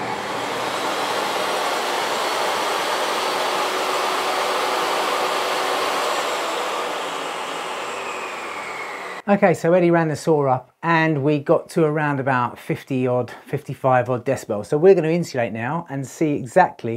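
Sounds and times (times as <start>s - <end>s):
table saw motor and blade whine: 0.0s - 9.2s.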